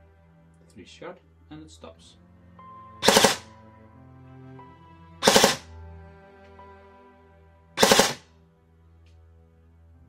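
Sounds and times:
airsoft gun firing bursts: 3.0s - 3.5s, 5.2s - 5.6s, 7.8s - 8.2s.

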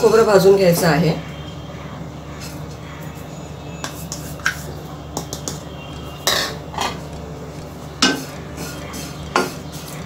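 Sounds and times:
utensils and pans clinking: 6.2s - 7.1s, 8.0s - 10.0s.

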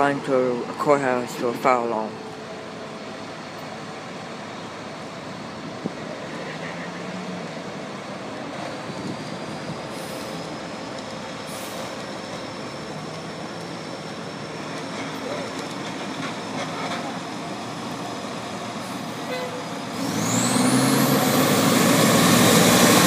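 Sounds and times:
diesel truck engine running: 7.3s - 23.0s
short air hisses: 11.5s - 12.0s.

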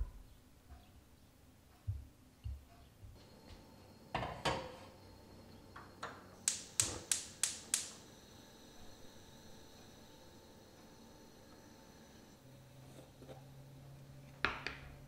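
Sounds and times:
spark igniter clicking: 6.4s - 8.1s.

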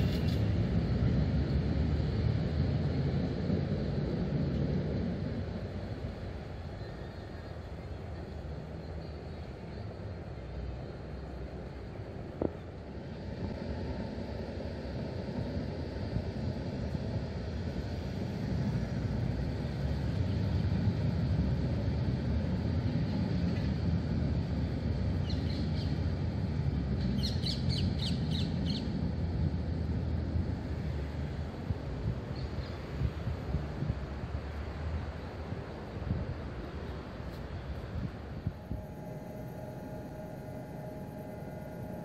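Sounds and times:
tram wheels rumbling on rail: 0.0s - 42.0s.

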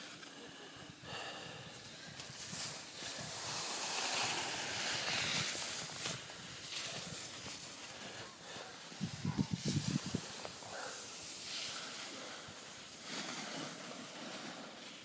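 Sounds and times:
skis hissing over snow: 0.0s - 15.0s
wind rushing over microphone: 8.8s - 11.0s.

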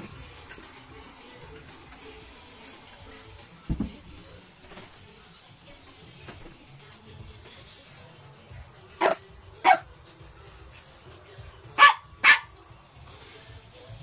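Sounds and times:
dog barking: 9.0s - 9.9s, 11.8s - 12.6s.

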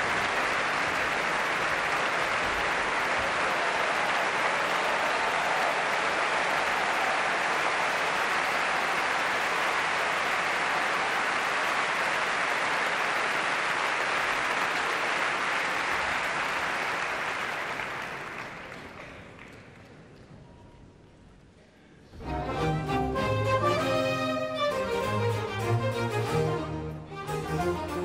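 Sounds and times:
audience applauding: 0.0s - 20.2s.

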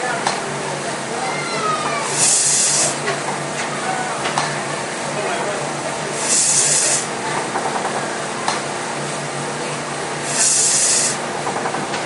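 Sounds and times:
steam engine mechanical hum: 0.0s - 12.0s
steam hissing: 2.0s - 3.2s, 6.0s - 7.2s, 10.1s - 11.3s.

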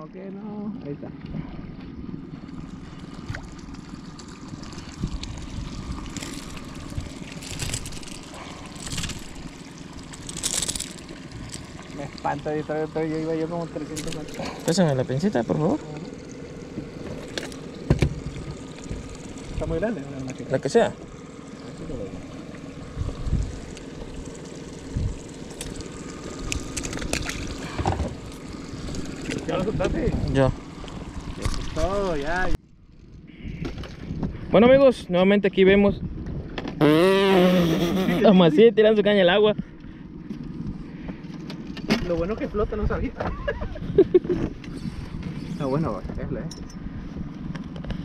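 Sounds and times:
steady low rumble: 0.0s - 36.6s
wind: 0.0s - 48.0s
water lapping around boat: 0.4s - 34.9s, 39.5s - 46.2s
fish splashing at surface: 2.7s - 12.2s, 23.6s - 29.5s.

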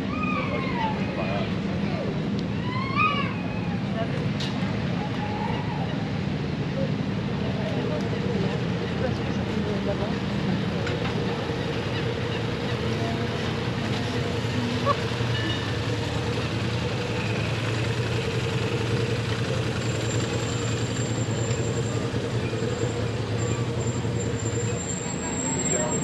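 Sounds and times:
low engine hum: 0.0s - 26.0s
outdoor background noise: 0.0s - 26.0s.

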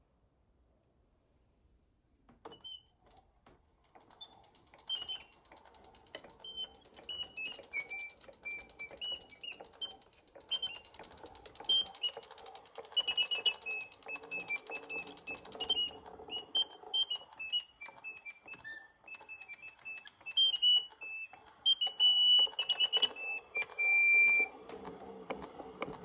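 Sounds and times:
wooden crank mechanism clicking: 2.4s - 26.0s
whistling pipe organ notes: 11.7s - 24.5s.

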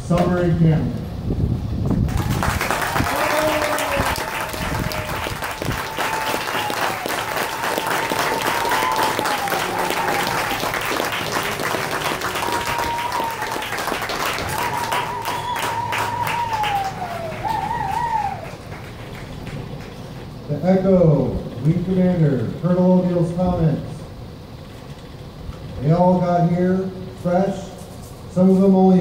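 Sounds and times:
crowd applauding: 2.0s - 20.4s
voices cheering: 2.1s - 20.0s.

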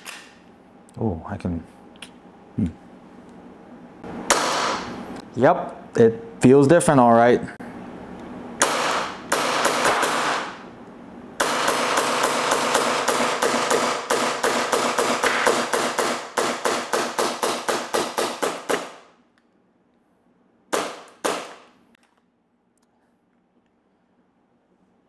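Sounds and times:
airsoft pistol firing: 8.6s - 10.6s, 11.4s - 19.0s, 20.7s - 21.7s.

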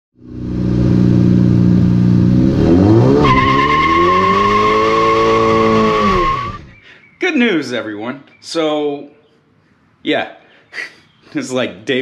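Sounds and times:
car engine revving: 0.2s - 6.8s
high squeal: 3.2s - 6.8s.

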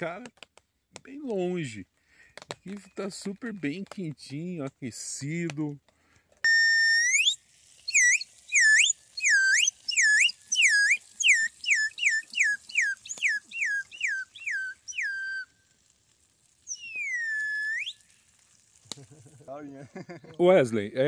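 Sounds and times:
slide whistle swooping notes: 6.4s - 15.6s, 16.7s - 18.2s.

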